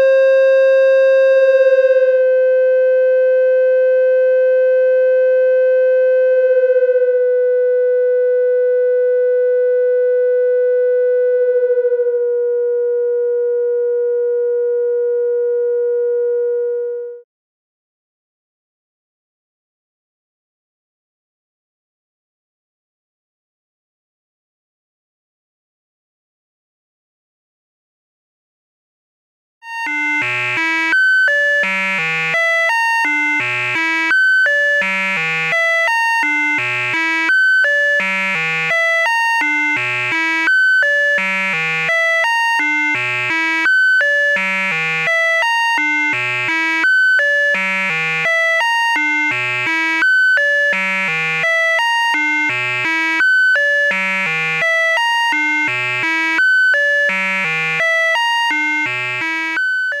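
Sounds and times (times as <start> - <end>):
buzzy electronic tone sequence: 0.0 - 2.4, 29.8 - 60.0.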